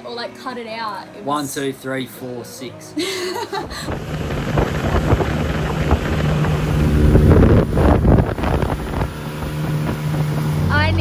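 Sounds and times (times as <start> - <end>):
outboard motor running: 3.6 - 11.0
wind buffeting microphone: 3.6 - 11.0.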